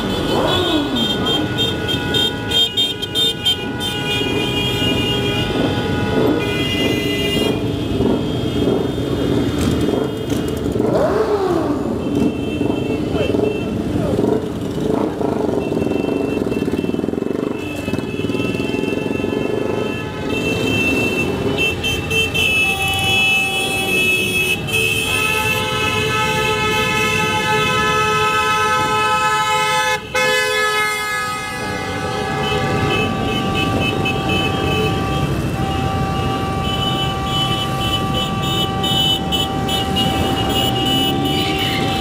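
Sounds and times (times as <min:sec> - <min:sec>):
motorcycle horns sounding: 0:00.0 - 0:42.0.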